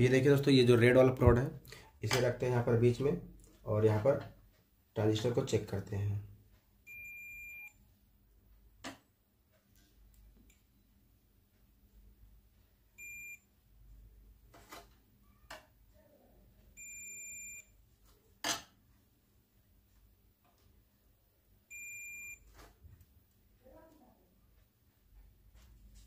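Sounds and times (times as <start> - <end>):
multimeter beeping: 6.9 - 7.8, 13.0 - 13.5, 16.8 - 17.7, 21.7 - 22.5.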